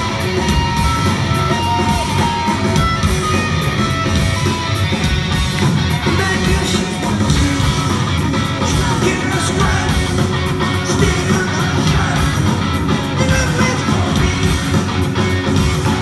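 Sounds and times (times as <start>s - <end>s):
live rock band playing loud: 0.0s - 16.0s
man singing lead vocals: 6.0s - 16.0s.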